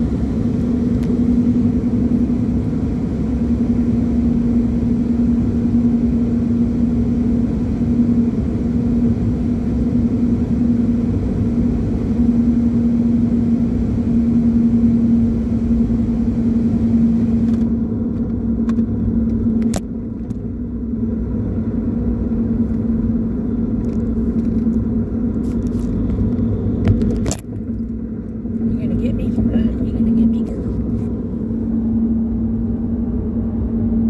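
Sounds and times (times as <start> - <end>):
truck engine rumble: 0.0 - 34.0.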